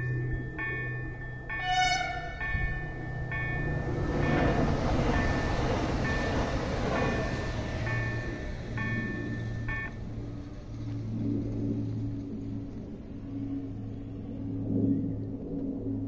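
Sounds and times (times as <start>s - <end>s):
level-crossing warning chimes: 0.0s - 10.6s
train rolling over rails: 0.0s - 14.3s.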